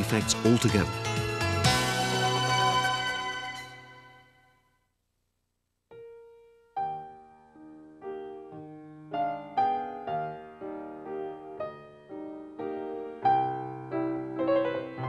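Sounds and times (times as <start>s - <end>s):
keyboard music: 0.0s - 4.5s.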